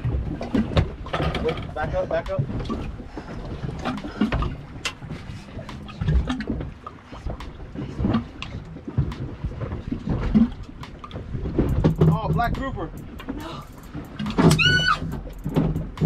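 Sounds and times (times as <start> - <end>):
water slapping boat hull: 0.0 - 16.0
knocks and thumps: 10.1 - 16.0.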